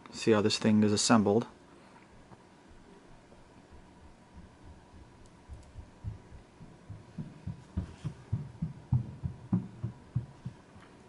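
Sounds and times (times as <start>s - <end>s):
faint clicks: 5.2s - 5.8s.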